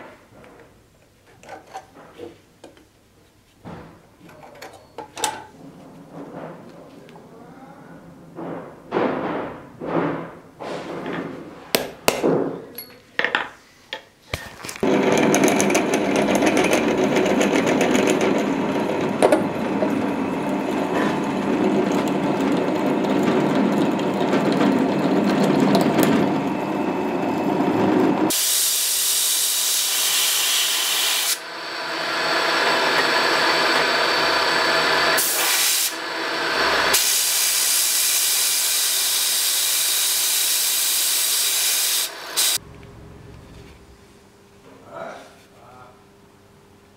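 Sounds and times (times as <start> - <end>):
drill press boring into steel: 14.8 - 27.4, 28.3 - 42.6.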